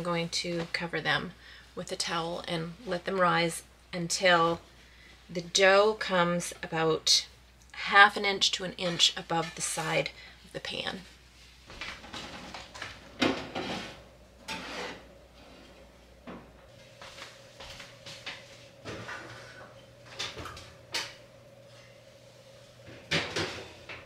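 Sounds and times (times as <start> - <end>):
oven clack: 22.8 - 24.0.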